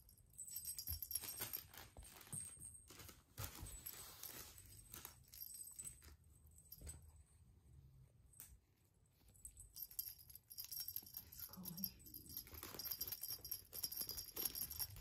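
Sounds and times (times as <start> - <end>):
small bell jingling: 0.0 - 3.0, 9.4 - 15.0.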